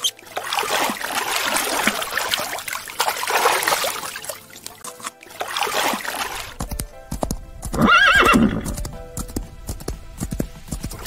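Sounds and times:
water splashing: 0.0s - 11.0s
horse hooves clip-clopping: 5.6s - 11.0s
horse whinny: 7.8s - 8.7s.

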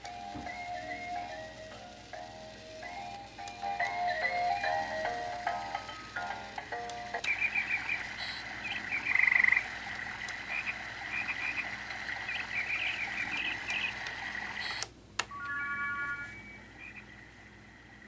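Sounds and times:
toy speaker chirping calls: 6.4s - 14.8s, 15.4s - 17.2s
short electronic tones: 14.6s - 17.1s.

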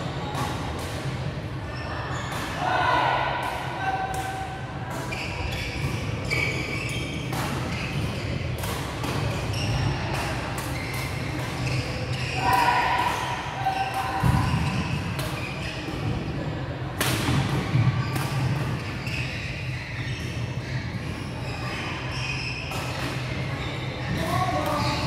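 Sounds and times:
rackets hitting shuttlecocks: 7.2s - 16.1s.

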